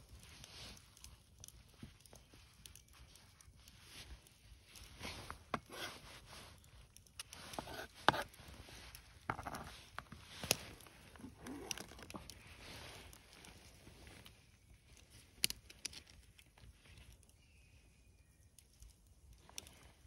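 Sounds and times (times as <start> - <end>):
spoon scraping on cutting board: 7.6 - 8.3.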